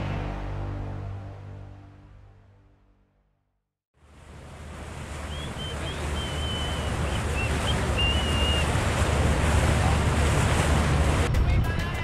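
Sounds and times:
boat motor rumble: 4.0 - 11.5
water noise: 4.0 - 11.5.

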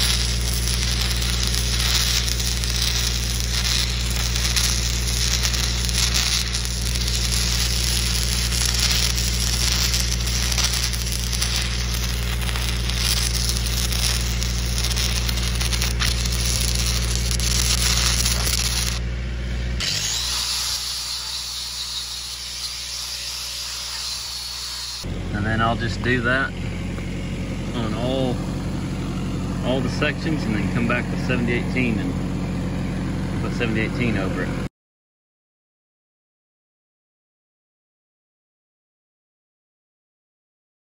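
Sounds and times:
welding arc crackling: 0.0 - 26.3
angle grinder running: 0.0 - 34.5
low steady hum: 0.0 - 34.6.

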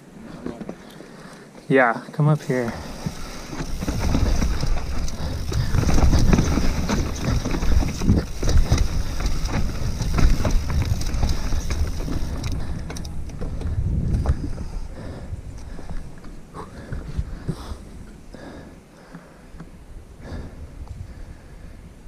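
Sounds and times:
bike clicks and rattles: 2.4 - 17.7
tyre rumble on dirt: 2.7 - 12.4
wind on microphone: 2.8 - 18.2, 19.7 - 22.0.

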